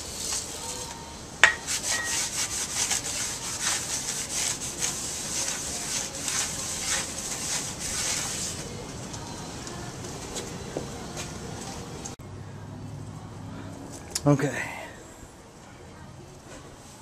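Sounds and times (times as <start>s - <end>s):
rag wiping brake rotor: 0.0s - 8.8s.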